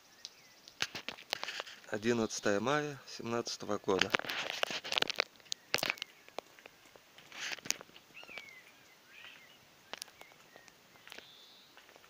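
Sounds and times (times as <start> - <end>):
bird chirps: 0.0 - 0.8, 5.4 - 6.8, 8.0 - 12.0
footsteps crunching in snow: 0.8 - 2.6, 3.6 - 12.0.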